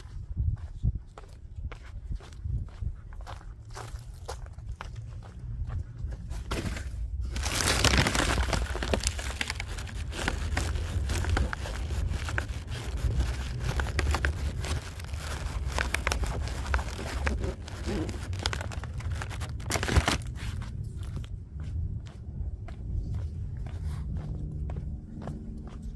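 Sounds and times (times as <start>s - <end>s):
grocery bags crinkling: 6.6s - 20.6s.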